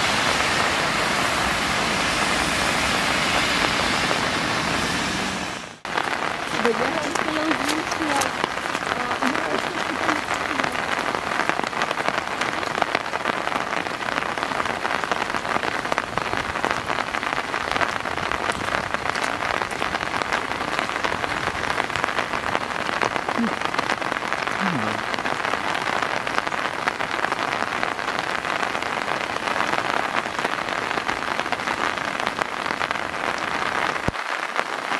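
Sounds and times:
rain on wet pavement: 0.0s - 34.9s.

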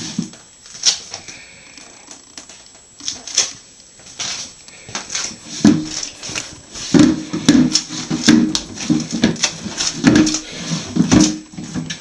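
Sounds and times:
plastic bowl scraping across floor: 4.2s - 12.0s.

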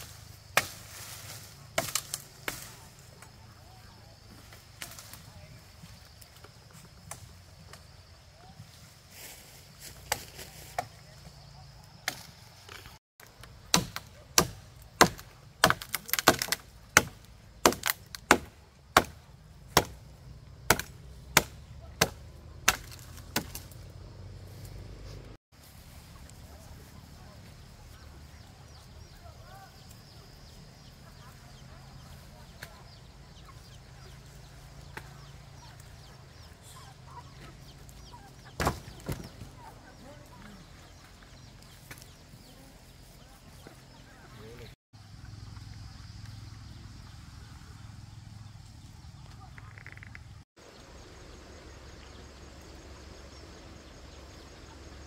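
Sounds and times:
chickens clucking: 30.8s - 42.4s.

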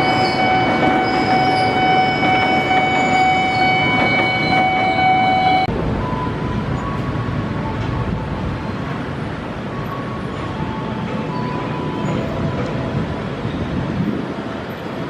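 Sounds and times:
train horn: 0.0s - 5.7s
rumble of train and traffic: 0.0s - 15.0s.

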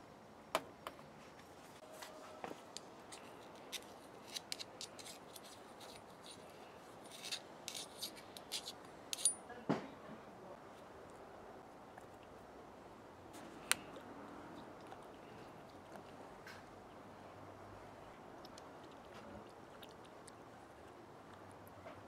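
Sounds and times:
screwdriver scraping metal: 3.1s - 9.4s.

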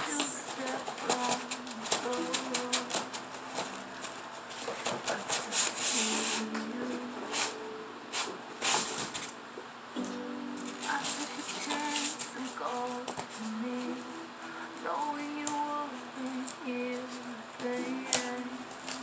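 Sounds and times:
faint low melodic tone: 6.0s - 8.6s, 9.3s - 16.1s.

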